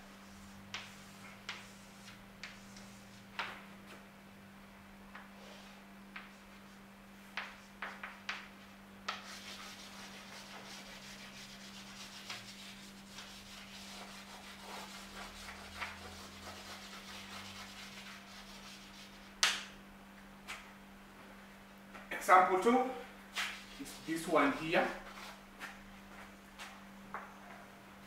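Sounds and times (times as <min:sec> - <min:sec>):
chalk scratching on chalkboard: 0:00.2 - 0:03.5, 0:09.1 - 0:19.3, 0:23.4 - 0:25.4
chalk tapping on chalkboard: 0:00.7 - 0:03.6, 0:07.3 - 0:19.6.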